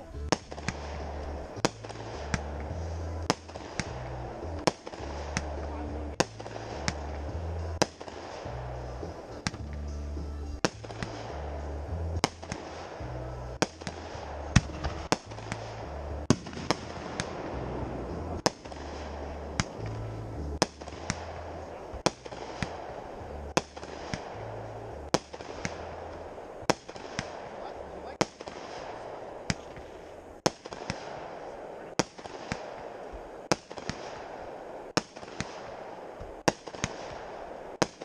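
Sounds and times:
fireworks bangs and pops: 0:00.0 - 0:38.0.

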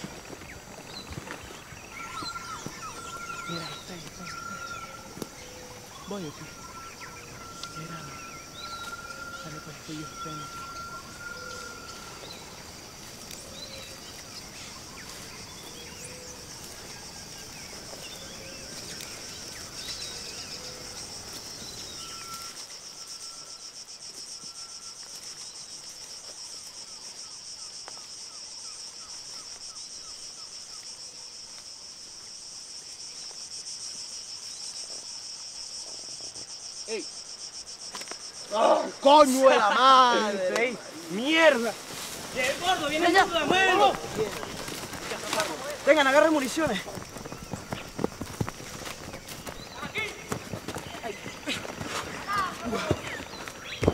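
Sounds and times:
bird chirps: 0:00.0 - 0:23.7, 0:49.1 - 0:53.9
insects chorus: 0:00.0 - 0:53.9.

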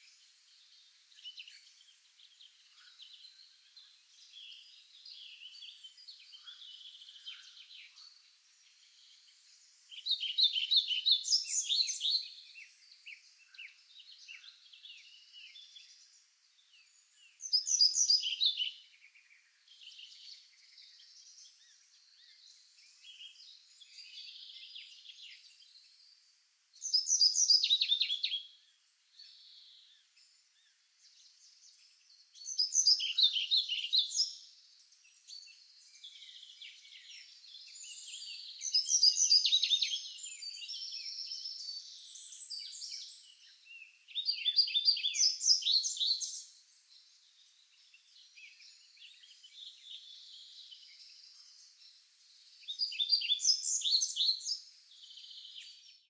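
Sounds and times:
songbird song phrases: 0:00.0 - 0:56.0
birds chirping and calling: 0:17.4 - 0:18.8, 0:32.4 - 0:34.4, 0:35.1 - 0:43.5, 0:52.6 - 0:56.0.

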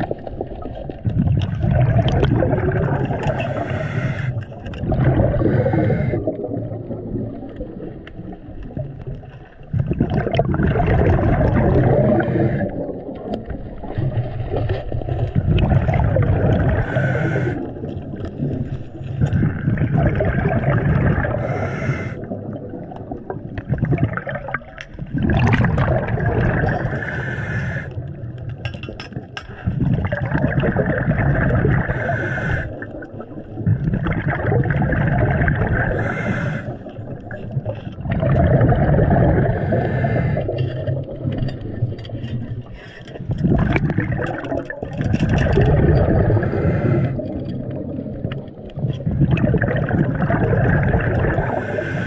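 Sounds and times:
exhaled bubbles gurgling: 0:00.0 - 0:52.0
regulator inhale hiss: 0:03.3 - 0:04.4, 0:05.4 - 0:06.3, 0:12.0 - 0:12.8, 0:16.8 - 0:17.7, 0:21.4 - 0:22.3, 0:26.9 - 0:28.0, 0:31.9 - 0:32.8, 0:35.9 - 0:37.0, 0:39.5 - 0:40.6, 0:46.4 - 0:47.3, 0:51.5 - 0:52.0.

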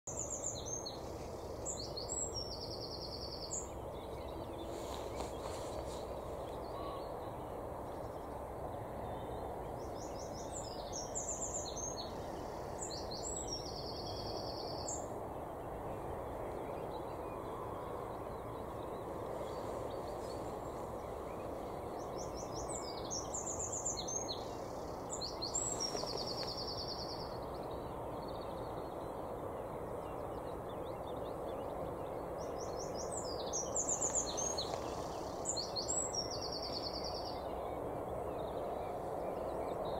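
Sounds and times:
songbird singing: 0:00.0 - 0:39.9
outdoor background noise: 0:00.1 - 0:39.9.

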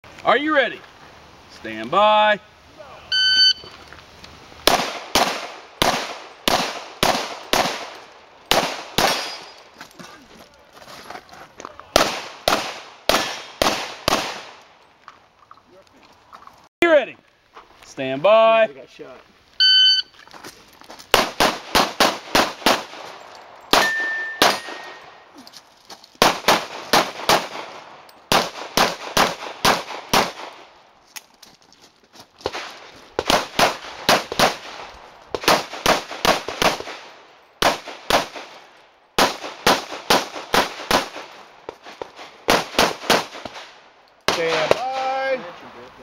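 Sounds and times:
short ringing tone: 0:03.1 - 0:03.7, 0:19.6 - 0:20.1, 0:23.8 - 0:25.2
handgun shots: 0:04.7 - 0:09.5, 0:23.7 - 0:25.0.

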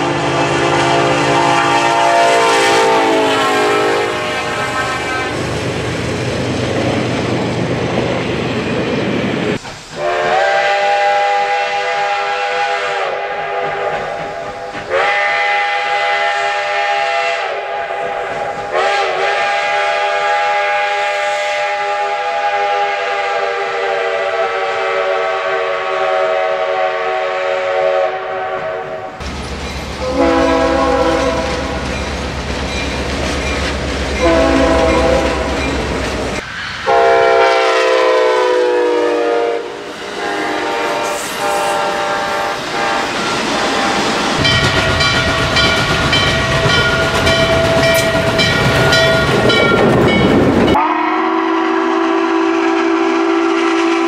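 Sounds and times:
steam whistle blasts: 0:00.0 - 0:05.4, 0:09.9 - 0:29.2, 0:30.0 - 0:31.8, 0:34.2 - 0:35.8, 0:36.8 - 0:49.8, 0:50.7 - 0:54.0
locomotive air horn: 0:00.0 - 0:05.5, 0:10.0 - 0:29.2, 0:30.0 - 0:31.9, 0:34.2 - 0:35.8, 0:36.8 - 0:45.1, 0:50.7 - 0:54.0
train passing rumble: 0:00.0 - 0:54.0.

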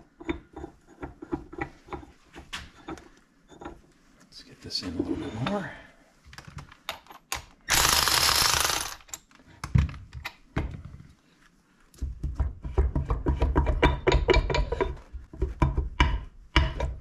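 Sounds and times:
loud hiss: 0:07.7 - 0:09.0.

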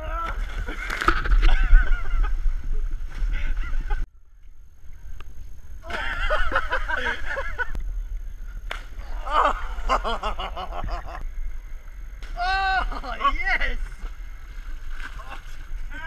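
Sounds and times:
wind rumble on microphone: 0:00.0 - 0:16.0
people whooping and hollering: 0:12.4 - 0:13.1.

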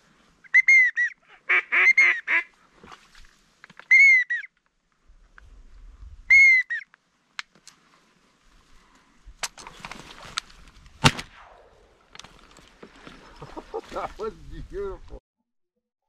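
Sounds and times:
whistled duck calls: 0:00.4 - 0:02.5, 0:03.9 - 0:04.5, 0:06.3 - 0:06.9.

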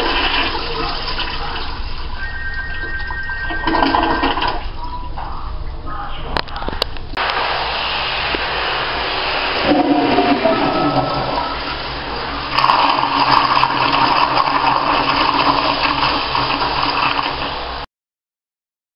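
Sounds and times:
toilet flushing: 0:00.0 - 0:05.1, 0:07.2 - 0:17.9
whistling tone: 0:02.2 - 0:03.7, 0:10.4 - 0:11.8.

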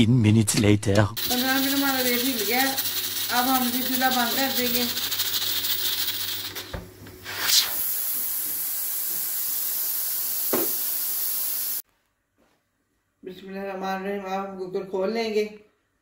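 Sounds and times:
pressure cooker steam hissing: 0:01.2 - 0:11.8.

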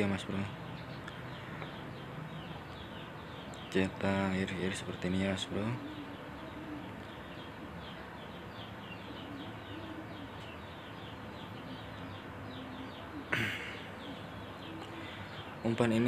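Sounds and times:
birds chirping: 0:00.0 - 0:16.0
soft low bird calls: 0:00.0 - 0:16.0.

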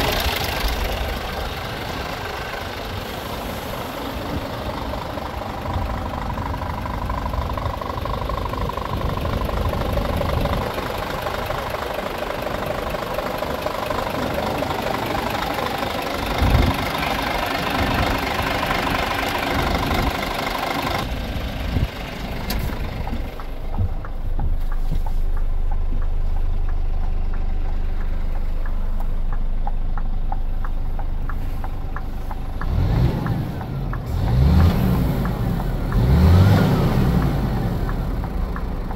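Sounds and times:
diesel truck engine idling: 0:00.0 - 0:38.9
engine revving: 0:30.6 - 0:38.9.

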